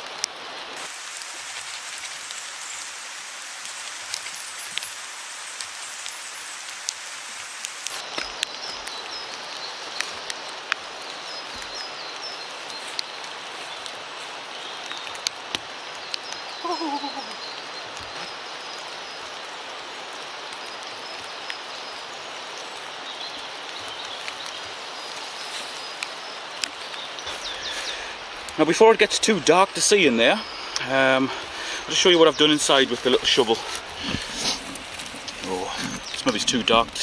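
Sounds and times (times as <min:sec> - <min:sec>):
sharp water drips: 0:00.0 - 0:37.0
steady rain falling: 0:00.0 - 0:37.0
small bird chirping: 0:16.0 - 0:18.4, 0:31.8 - 0:37.0.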